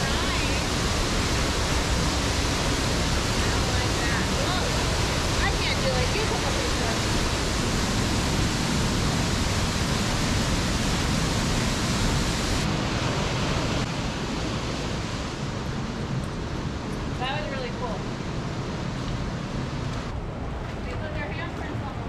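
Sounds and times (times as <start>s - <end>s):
waterfall rushing: 0.0s - 15.6s.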